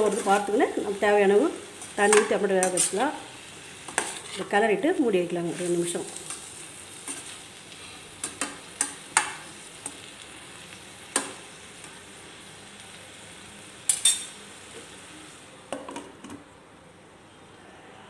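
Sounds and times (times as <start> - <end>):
frying sizzle: 0.0 - 16.5
spoon scraping a metal pan: 2.1 - 3.0.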